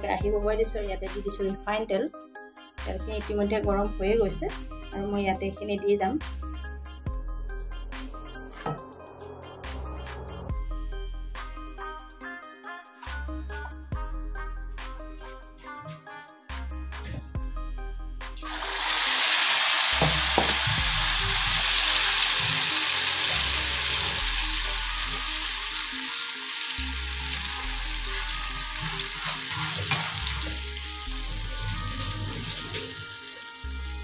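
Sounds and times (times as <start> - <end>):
food sizzling in hot oil: 18.4 - 34.0.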